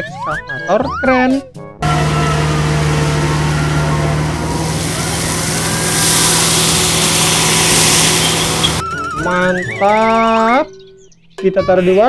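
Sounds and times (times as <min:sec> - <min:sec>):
diesel engine droning: 0:01.8 - 0:08.8
gravel pouring hiss: 0:01.8 - 0:08.8.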